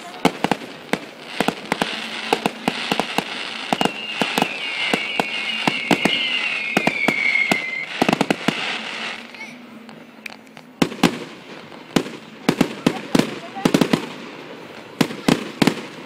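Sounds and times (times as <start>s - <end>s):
fireworks bangs and crackling pops: 0.0s - 16.0s
fireworks hiss: 0.0s - 16.0s
falling whistle: 3.6s - 8.4s.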